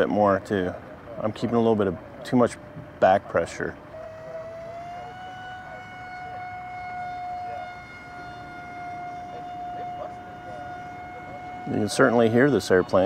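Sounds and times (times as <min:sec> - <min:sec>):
model plane motor whine: 0:03.8 - 0:13.0.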